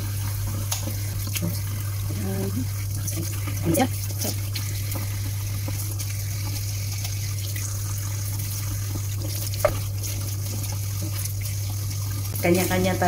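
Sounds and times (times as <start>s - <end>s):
tap running into metal sink: 9.2s - 9.9s.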